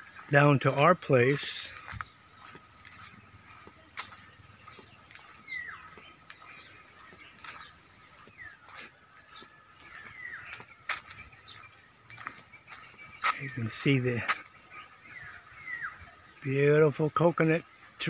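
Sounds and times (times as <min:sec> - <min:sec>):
high insect drone: 0:00.0 - 0:08.4
short falling bird calls: 0:01.1 - 0:16.5.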